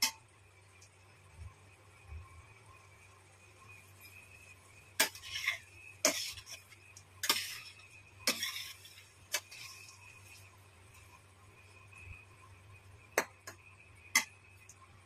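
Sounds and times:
induction cooktop whine and hum: 0.0 - 15.0.

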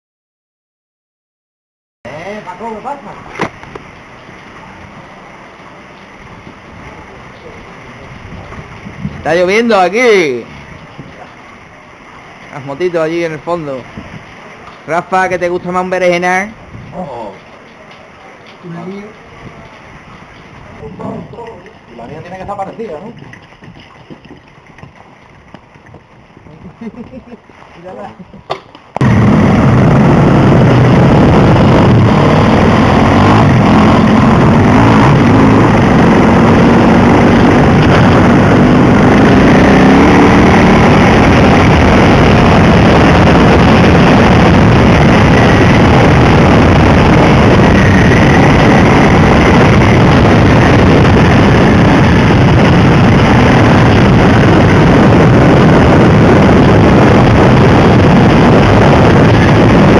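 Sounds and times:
wind rush on microphone: 2.1 - 59.9
dirt bike engine running: 29.0 - 59.9.

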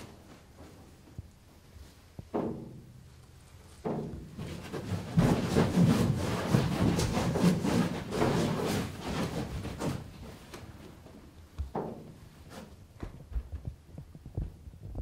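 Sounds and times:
puppet scraping and knocking on rail: 3.8 - 10.5.

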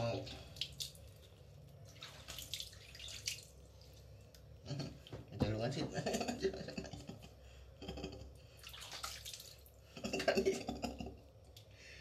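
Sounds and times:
water splashing and dripping: 0.3 - 4.4, 8.6 - 9.7.

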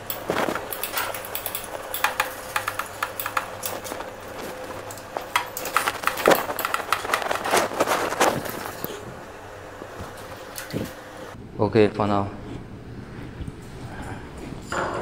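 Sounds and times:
metal tools clinking on machine: 0.0 - 4.0
faint steady hum: 0.0 - 15.0.

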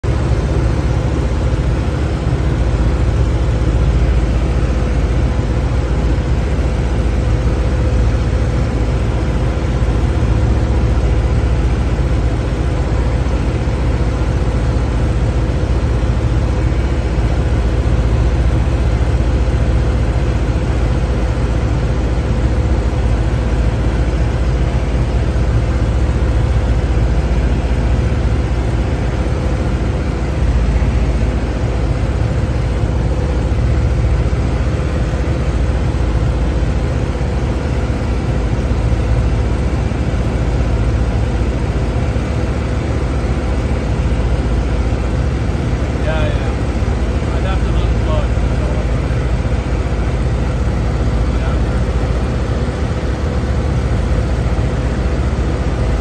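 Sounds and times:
aircraft engine drone: 0.0 - 56.0
faint steady whine: 0.0 - 56.0.

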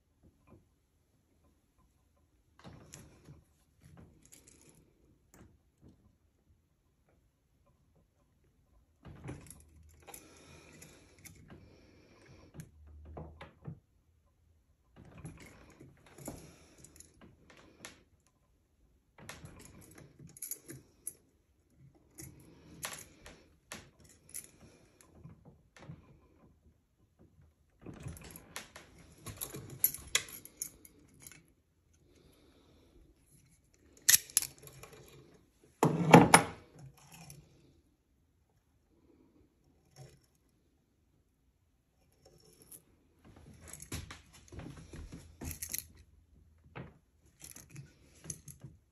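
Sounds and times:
metal chain links clinking and grinding: 19.4 - 21.2, 28.0 - 31.5.

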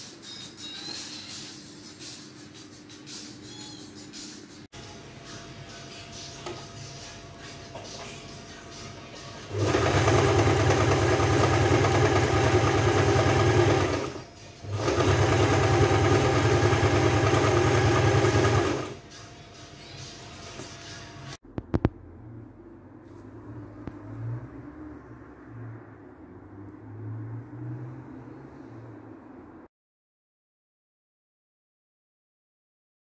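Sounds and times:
sewing machine stitching: 9.4 - 19.0.

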